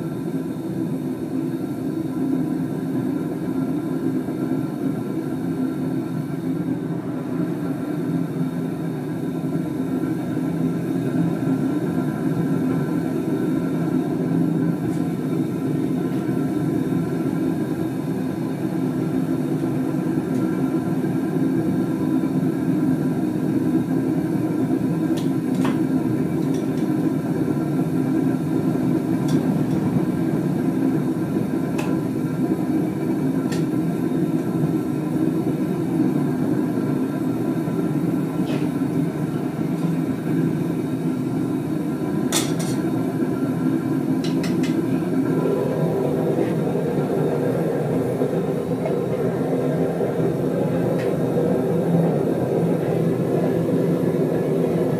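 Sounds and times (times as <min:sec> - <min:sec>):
gas burner roaring: 0:00.0 - 0:54.9.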